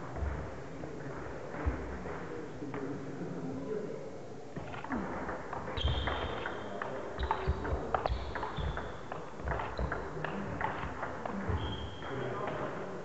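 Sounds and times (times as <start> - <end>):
shoes squeaking on wooden floor: 5.7 - 6.4.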